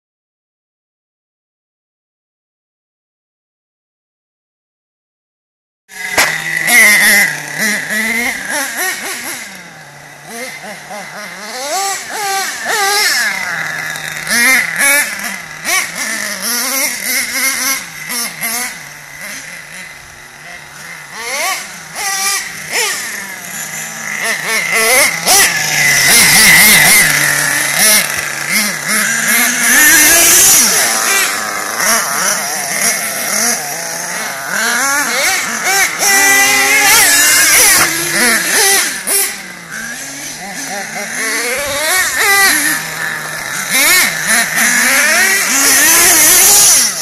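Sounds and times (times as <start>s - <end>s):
small nitro engine revving: 5.9s - 47.0s.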